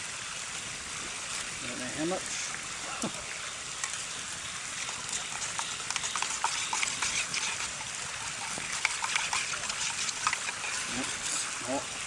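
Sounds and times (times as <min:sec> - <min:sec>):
steady hiss: 0:00.0 - 0:12.0
campfire crackling and popping: 0:03.0 - 0:10.9
metal spoon stirring in metal mug: 0:04.8 - 0:11.6.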